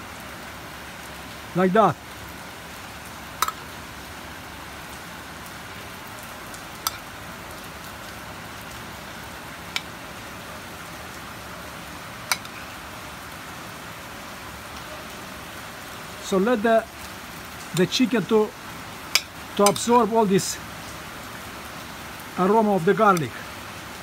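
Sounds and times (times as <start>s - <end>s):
heavy rain falling: 0.0s - 24.0s.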